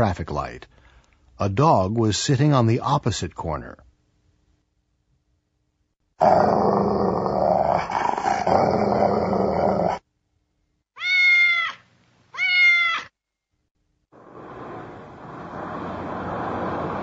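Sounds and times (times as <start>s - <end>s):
animal growl: 6.2s - 10.0s
cat meows: 11.0s - 13.1s.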